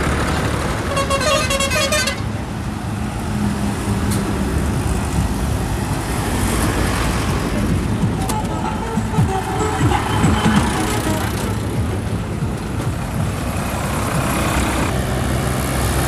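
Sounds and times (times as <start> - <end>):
diesel tractor engines running: 0.0 - 16.0
rapid pulsing horn: 8.0 - 12.0.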